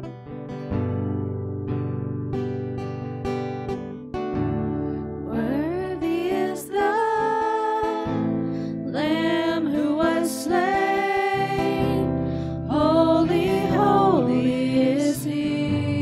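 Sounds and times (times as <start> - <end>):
strummed acoustic guitar: 0.0 - 16.0
women singing: 5.3 - 8.3, 8.9 - 16.0.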